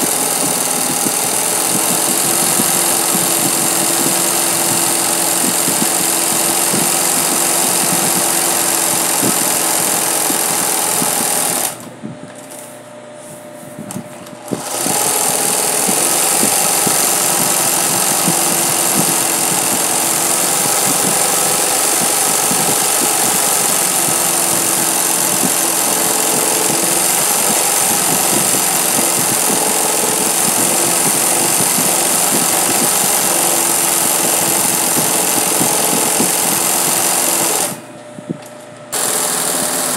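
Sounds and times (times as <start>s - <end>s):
sewing machine stitching: 0.0s - 11.8s, 14.5s - 37.8s, 38.9s - 39.9s.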